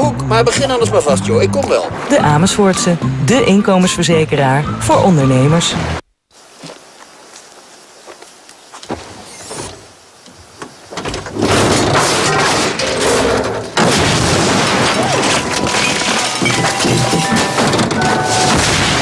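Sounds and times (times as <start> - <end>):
thumps: 13.4 - 19.0
loud crashing din: 13.8 - 19.0.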